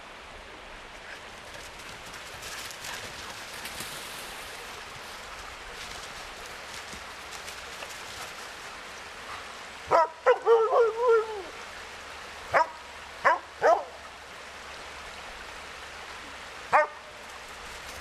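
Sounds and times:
stream rushing: 0.0 - 18.0
dogs barking: 9.9 - 11.2, 12.5 - 13.9, 16.7 - 17.0.

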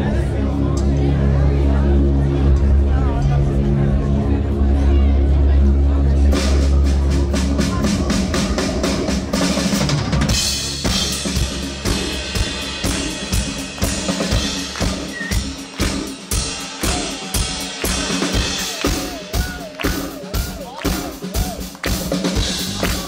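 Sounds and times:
rock band playing: 0.0 - 23.0
drum kit pounding a beat: 6.2 - 23.0.

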